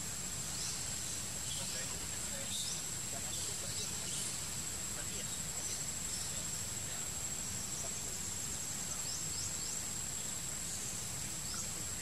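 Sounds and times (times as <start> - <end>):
high-pitched insect trill: 0.0 - 12.0.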